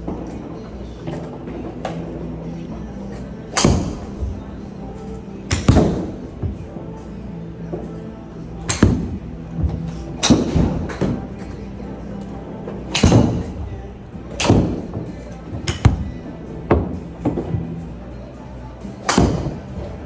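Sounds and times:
background music: 0.0s - 20.0s
ball hitting screen: 3.5s - 4.4s, 5.5s - 6.6s, 8.6s - 11.5s, 12.9s - 13.7s, 14.3s - 17.6s, 19.0s - 19.7s
golf club striking ball: 5.5s - 6.2s, 12.9s - 13.6s.

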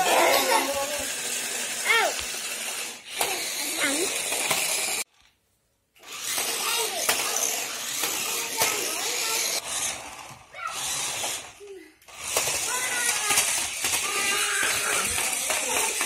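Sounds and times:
toy car motors whirring: 0.0s - 5.3s, 6.0s - 16.0s
faint child voices: 8.1s - 9.7s, 12.6s - 16.0s.

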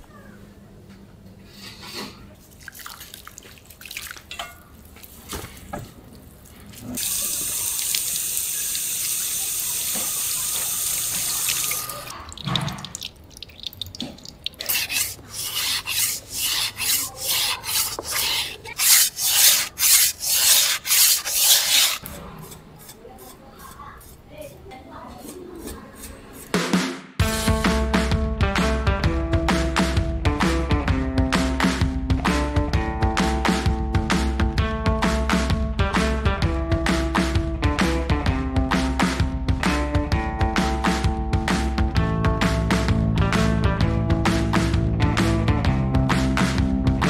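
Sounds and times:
water drips and splashes: 2.5s - 15.2s
tap water running into strainer: 7.0s - 15.4s
knife on whetstone: 14.6s - 26.5s.

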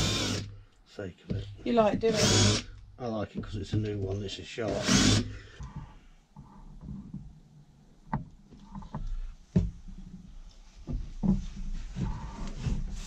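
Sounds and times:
wood rubbing and shuffling: 8.4s - 13.0s.

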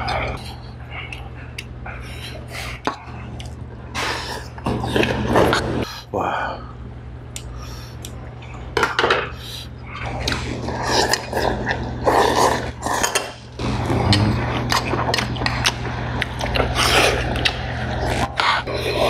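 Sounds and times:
steady low hum: 0.0s - 19.0s
slurping and chewing: 9.9s - 19.0s.

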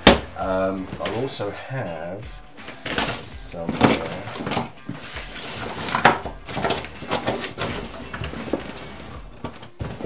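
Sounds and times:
fabric bag rustling and scraping: 2.6s - 10.0s
items knocking inside bag: 2.8s - 10.0s.

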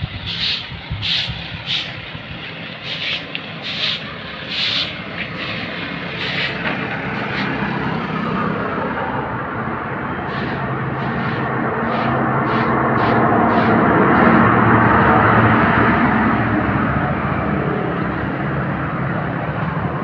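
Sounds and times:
vehicle engine and tyre noise: 0.0s - 20.0s
broom sweeping concrete: 0.2s - 2.0s, 2.8s - 7.6s, 10.3s - 15.1s.

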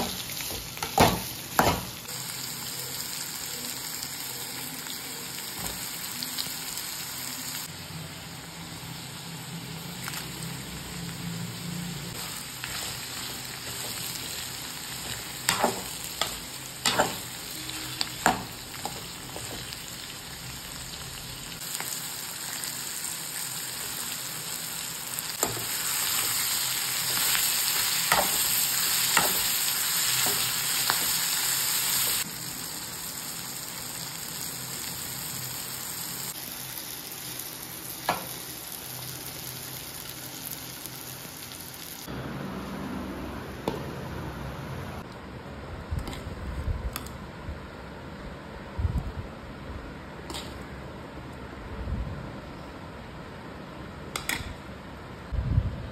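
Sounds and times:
vegetables sizzling in hot oil: 0.0s - 42.1s.

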